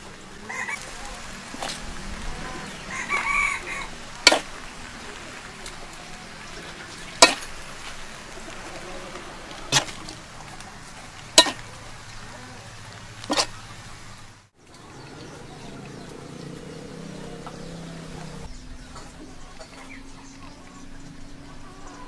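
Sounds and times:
steady low hiss: 0.0s - 21.8s
metal utensil clinking on metal plate: 11.4s - 11.7s.

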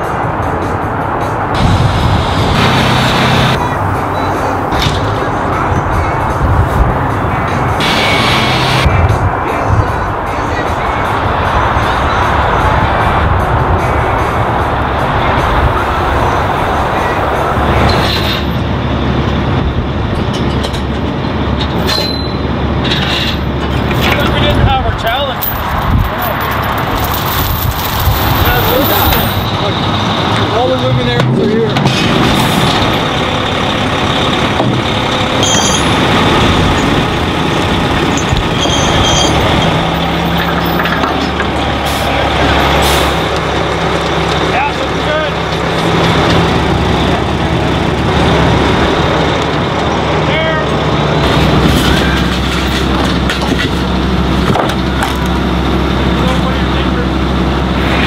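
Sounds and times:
diesel truck engine rumbling: 0.0s - 58.0s
brief high squeal: 21.9s - 22.4s, 38.6s - 39.4s.

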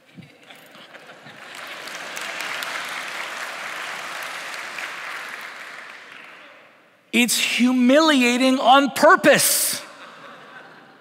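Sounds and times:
congregation applauding: 0.7s - 6.8s.

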